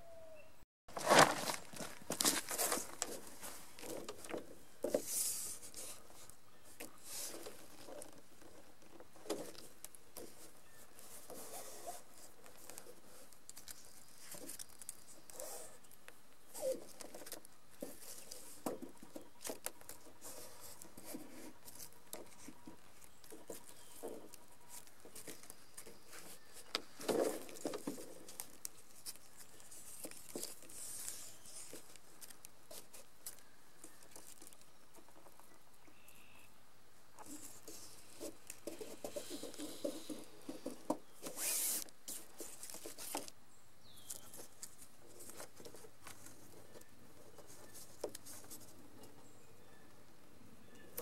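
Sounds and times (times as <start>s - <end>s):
plastic film crinkling: 0.9s - 4.3s.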